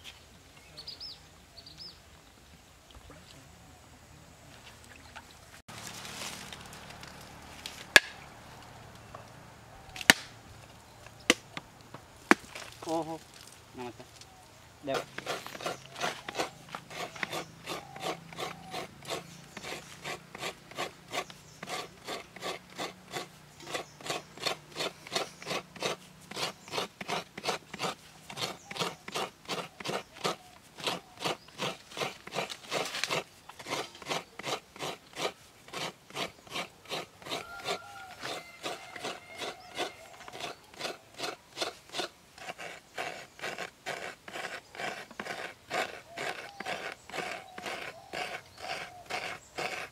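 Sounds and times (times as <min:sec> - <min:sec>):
coconut scraping against ridged bowl: 0:14.8 - 0:49.9.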